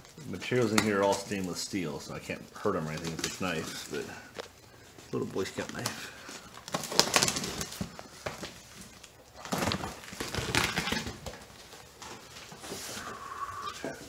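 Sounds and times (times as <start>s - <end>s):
cardboard flaps scraping and rustling: 2.2s - 13.2s.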